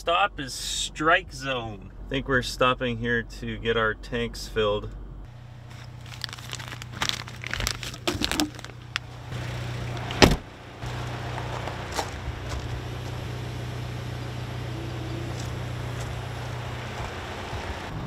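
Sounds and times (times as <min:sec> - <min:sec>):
car idling hum: 0:00.0 - 0:18.0
plastic bags rustling: 0:05.4 - 0:09.1
loud thump: 0:10.2 - 0:10.5.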